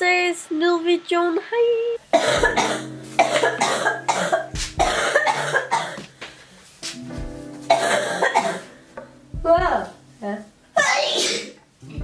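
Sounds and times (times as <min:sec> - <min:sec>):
woman sneezing: 0:10.8 - 0:11.6.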